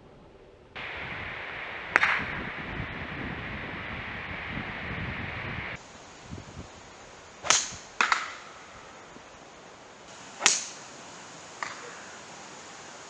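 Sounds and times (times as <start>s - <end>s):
golf club swish: 1.8s - 2.5s, 7.4s - 8.4s, 10.2s - 11.0s
golf club striking ball: 1.9s - 2.3s, 7.4s - 8.6s, 10.4s - 10.9s.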